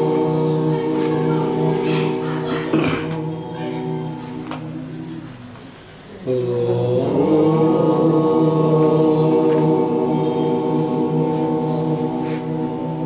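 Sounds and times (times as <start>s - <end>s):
mantra chanting in held notes: 0.0s - 13.0s.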